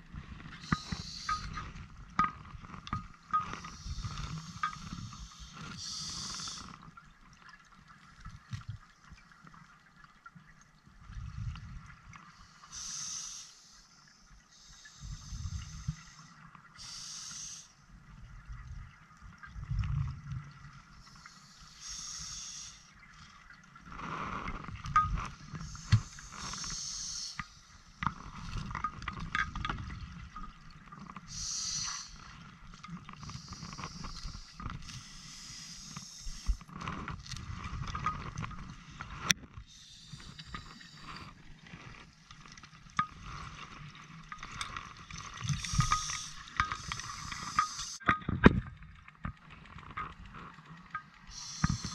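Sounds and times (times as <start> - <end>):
regulator hiss on inhalation: 0.6 - 1.6, 3.6 - 6.7, 12.5 - 17.8, 21.0 - 22.9, 25.5 - 27.7, 31.3 - 32.3, 33.2 - 36.7, 39.7 - 41.3, 45.5 - 48.0, 51.3 - 51.9
diving gear clicks and knocks: 1.3 - 5.0, 24.6 - 26.0, 28.0 - 31.2, 36.7 - 39.5, 42.4 - 51.3
exhaled bubbles gurgling: 18.0 - 49.2.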